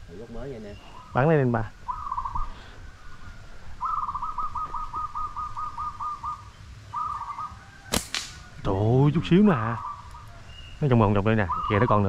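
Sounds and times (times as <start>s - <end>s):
bird calling in quick repeated notes: 3.8s - 8.6s, 9.5s - 12.0s.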